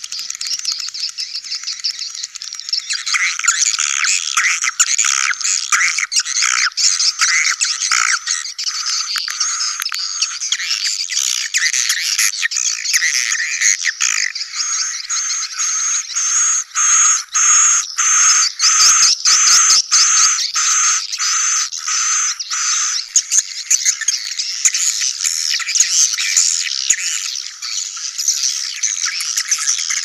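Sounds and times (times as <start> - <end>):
swiftlet chirps and twitters: 14.4 - 30.0.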